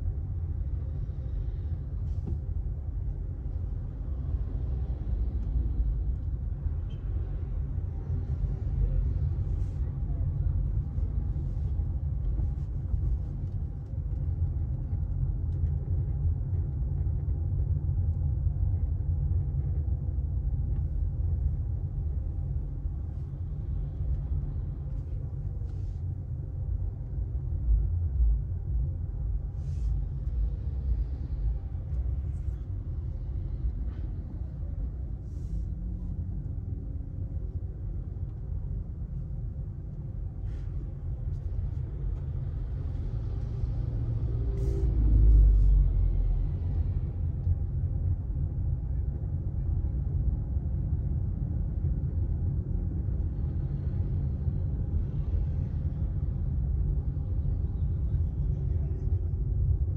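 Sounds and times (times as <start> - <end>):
road vehicle rumble: 0.0 - 59.9.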